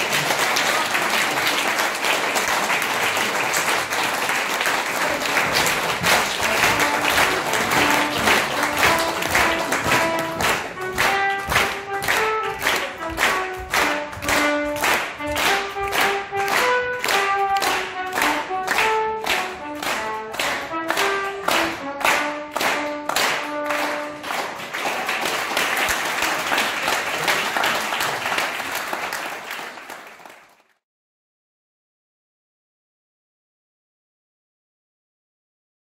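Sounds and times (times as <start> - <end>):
audience applause: 0.0 - 30.8
audience clapping in time: 0.0 - 30.8
trumpet melody: 5.0 - 24.5.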